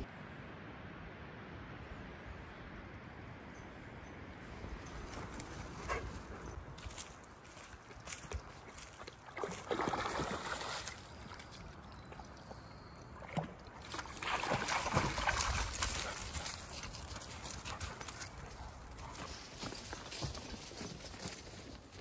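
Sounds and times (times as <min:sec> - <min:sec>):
splashing in shallow water: 0:08.0 - 0:18.3.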